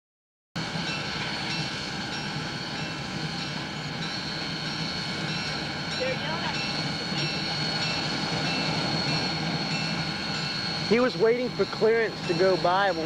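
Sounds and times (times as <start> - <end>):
distant steam locomotive running: 0.6 - 13.0.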